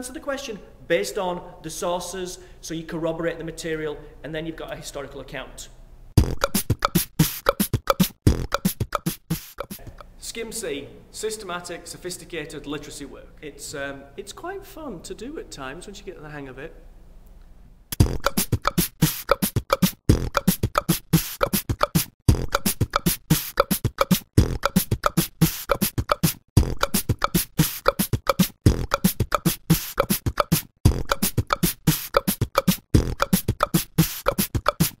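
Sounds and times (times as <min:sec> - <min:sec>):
fast beatbox-like percussive beat: 0:06.2 - 0:10.1, 0:17.9 - 0:35.0.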